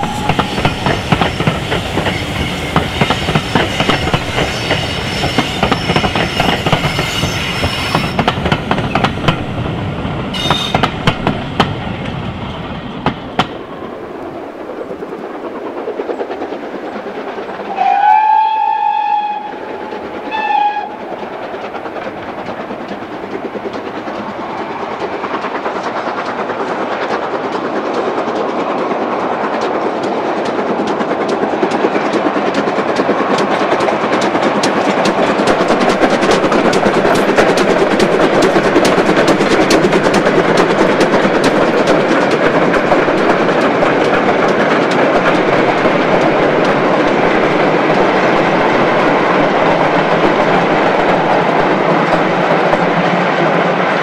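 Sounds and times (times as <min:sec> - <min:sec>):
steam locomotive working: 0:00.0 - 0:54.0
train wheels clattering on rails: 0:00.0 - 0:54.0
steam whistle blowing: 0:10.4 - 0:10.8, 0:17.7 - 0:19.6, 0:20.3 - 0:21.0.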